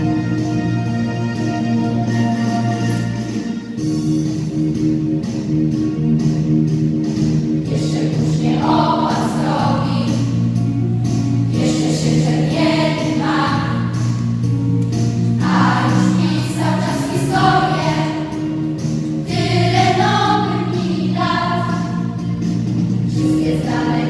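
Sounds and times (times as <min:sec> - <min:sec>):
children's choir singing: 0:07.7 - 0:10.4, 0:11.5 - 0:14.2, 0:15.4 - 0:22.2, 0:23.1 - 0:24.0.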